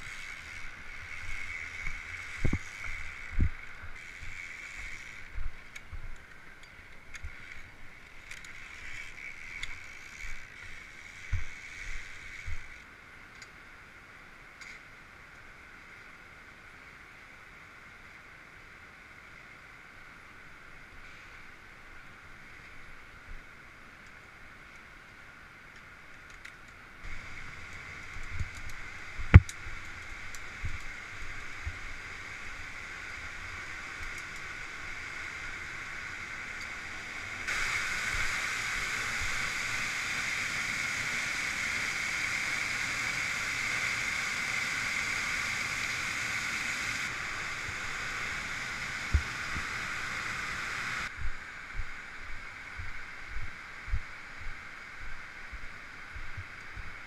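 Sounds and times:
waterfall rushing: 0:37.5 - 0:51.1.

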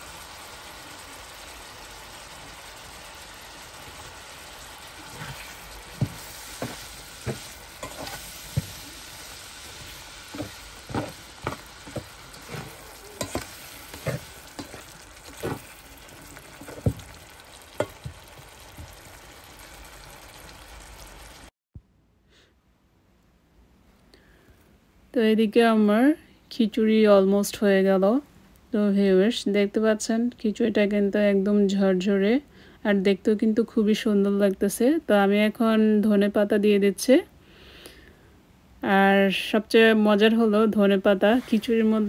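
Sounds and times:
gravy simmering with bubble pops: 0:09.9 - 0:21.5.

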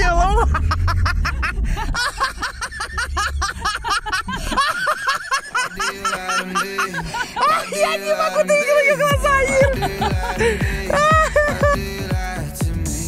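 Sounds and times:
low rumble: 0:00.0 - 0:07.4, 0:09.1 - 0:13.0
song with vocals over a beat: 0:05.8 - 0:13.0.

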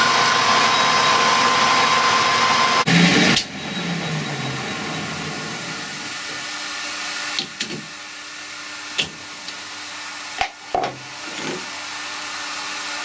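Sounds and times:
lathe machinery humming: 0:00.0 - 0:10.0.

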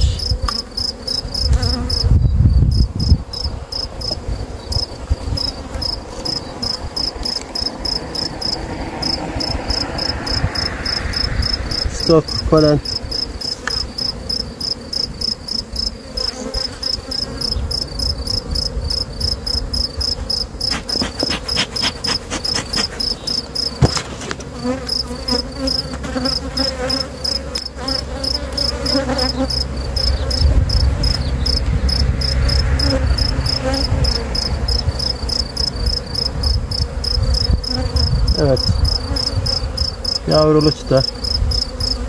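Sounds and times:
cricket chirping: 0:00.0 - 0:42.0
honeybees buzzing: 0:00.0 - 0:42.0
clicks of hive frames: 0:07.0 - 0:07.7, 0:13.4 - 0:14.0, 0:20.6 - 0:29.3.

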